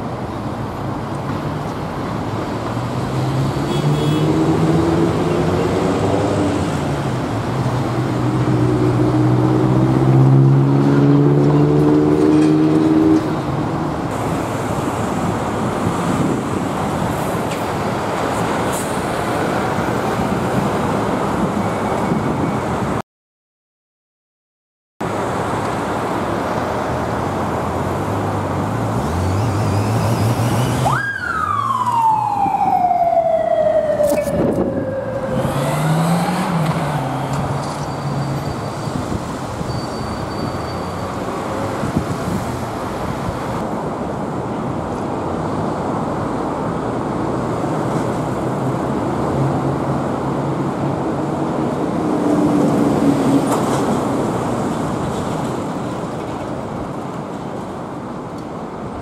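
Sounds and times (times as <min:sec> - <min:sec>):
road traffic: 0:00.0 - 0:23.0, 0:25.0 - 0:59.0
police siren wail: 0:30.6 - 0:37.7
engine accelerating: 0:35.2 - 0:37.8.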